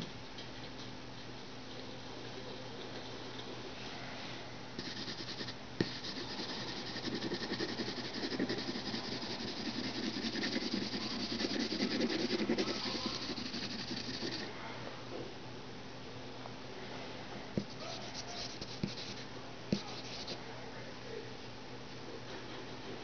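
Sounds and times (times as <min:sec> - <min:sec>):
pencil scratching on paper: 0:04.8 - 0:14.5, 0:17.6 - 0:20.4.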